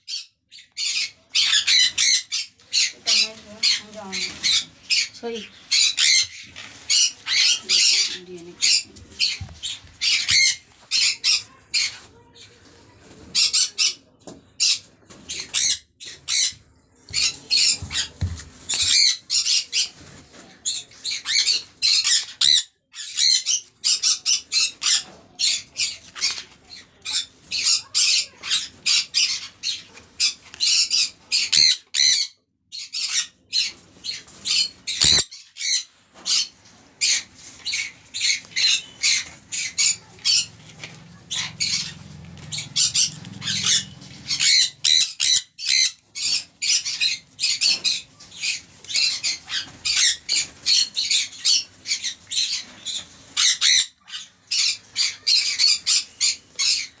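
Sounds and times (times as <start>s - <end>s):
parrots screeching: 0.1s - 12.0s, 27.0s - 57.0s.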